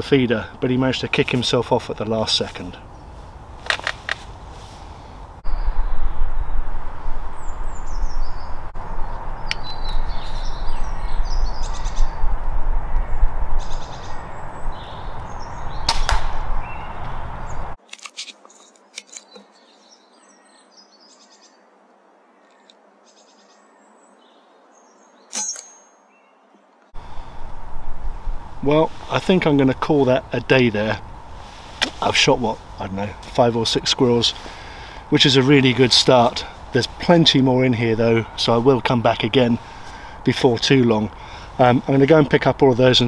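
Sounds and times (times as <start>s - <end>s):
small birds chirping: 0.0s - 3.6s, 4.2s - 17.8s, 19.1s - 21.6s, 22.3s - 43.0s
air rifle shot crack: 15.8s - 17.2s
sharp crack with high ring: 25.3s - 26.0s.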